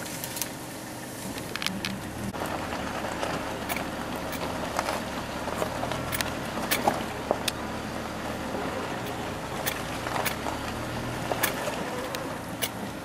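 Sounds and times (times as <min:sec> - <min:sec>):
crackly rustling: 0:00.0 - 0:13.0
vehicle engine idling: 0:00.0 - 0:13.0
sharp clicks: 0:03.6 - 0:04.6, 0:05.5 - 0:07.6, 0:09.0 - 0:13.0.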